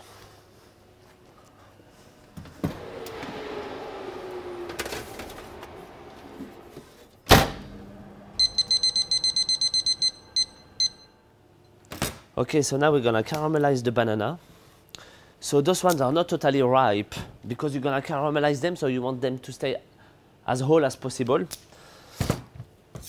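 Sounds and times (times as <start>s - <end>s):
oven door shutting with thud: 7.3s - 7.9s
electronic beeps: 8.4s - 11.2s.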